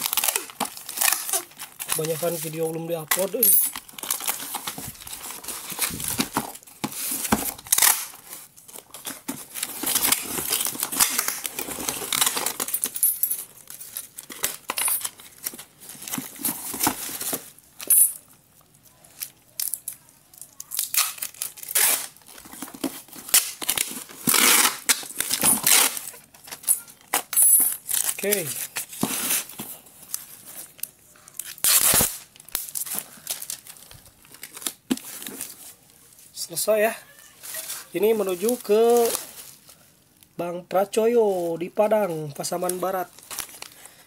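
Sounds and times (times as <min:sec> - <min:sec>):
packing tape ripping off roll: 0:00.0 - 0:13.0, 0:20.6 - 0:35.6.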